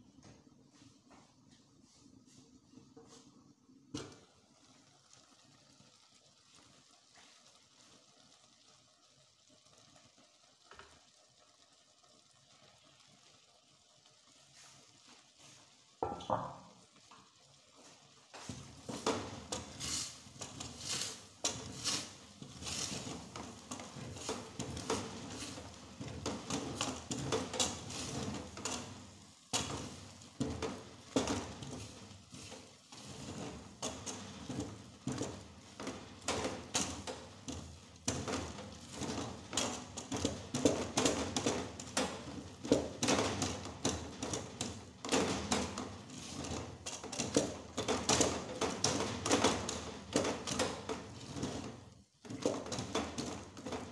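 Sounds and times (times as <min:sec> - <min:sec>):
wooden spatula scraping pot: 0:18.5 - 0:53.9.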